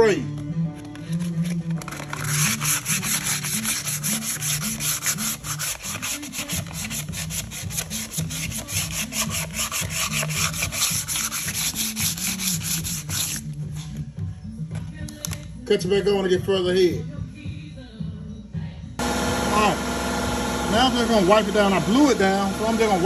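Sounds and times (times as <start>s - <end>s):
sandpaper rubbing on metal: 1.0s - 13.5s.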